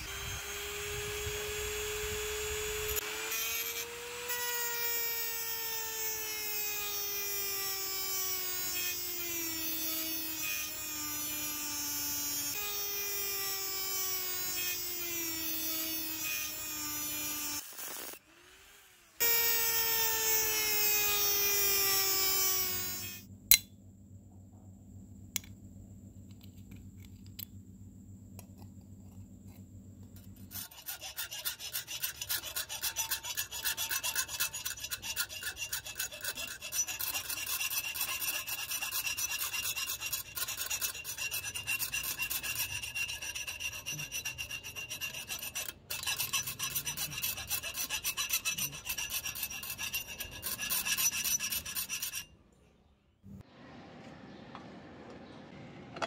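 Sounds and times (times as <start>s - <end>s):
power tool motor whining: 0.0s - 23.2s.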